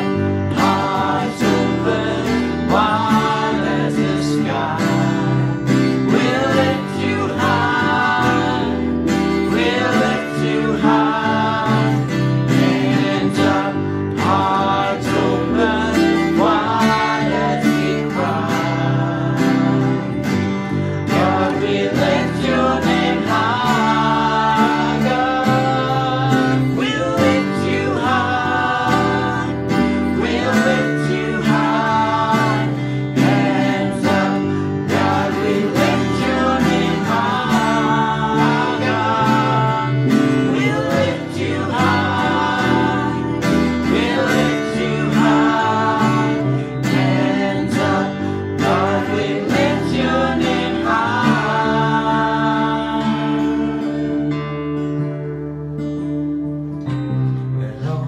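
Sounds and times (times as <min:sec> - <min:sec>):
person singing: 0:00.0 - 0:54.6
guitar accompaniment: 0:00.0 - 0:58.0.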